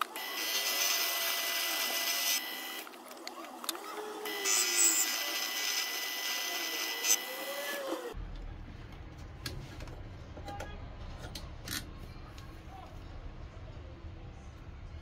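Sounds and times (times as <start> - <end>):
lathe running with high whine: 4.2 - 8.1.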